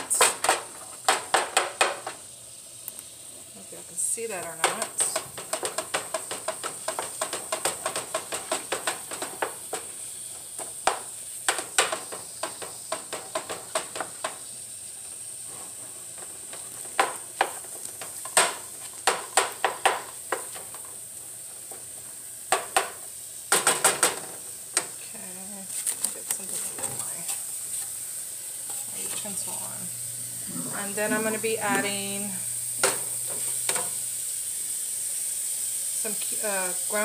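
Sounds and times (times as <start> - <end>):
meat sizzling in frying pan: 0.0 - 37.0
utensil scraping pan: 25.7 - 28.0, 28.6 - 29.6, 32.8 - 34.0.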